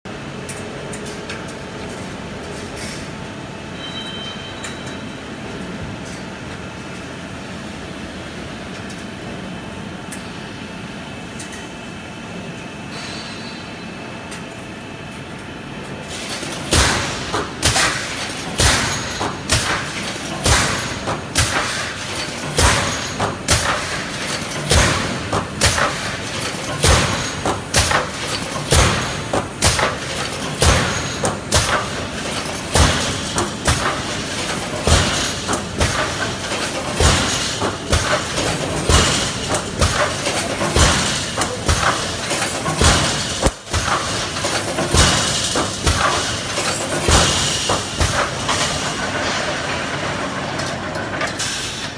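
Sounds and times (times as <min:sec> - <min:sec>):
workshop hum: 0:00.0 - 0:51.9
welding machine clacking: 0:15.4 - 0:51.9.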